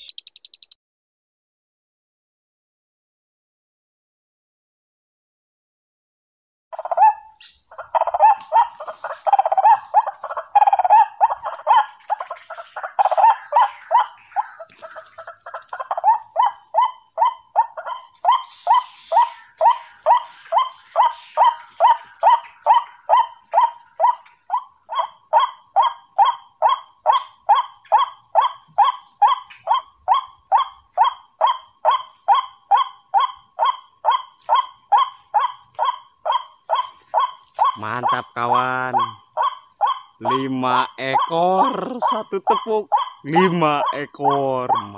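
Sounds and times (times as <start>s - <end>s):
bird calls from a loudspeaker: 0.0s - 0.7s, 24.9s - 44.9s.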